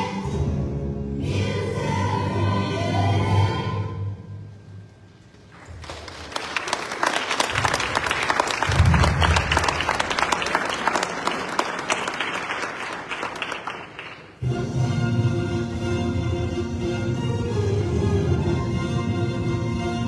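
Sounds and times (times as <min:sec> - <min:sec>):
audience clapping: 0:05.4 - 0:14.4.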